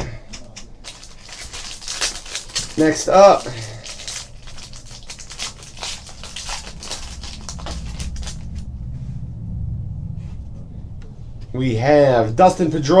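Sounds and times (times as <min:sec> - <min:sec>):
foil wrapper crinkling and tearing: 0:00.8 - 0:08.7.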